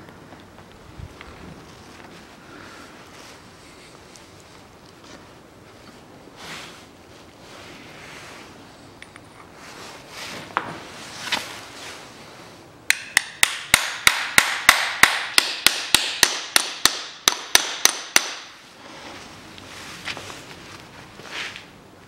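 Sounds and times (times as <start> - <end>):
hammer striking metal sleeve: 12.9 - 18.6.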